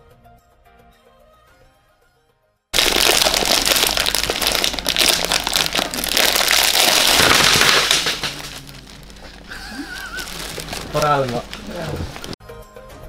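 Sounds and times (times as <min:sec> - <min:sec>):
plastic candy wrapper crinkling: 0:02.8 - 0:12.4.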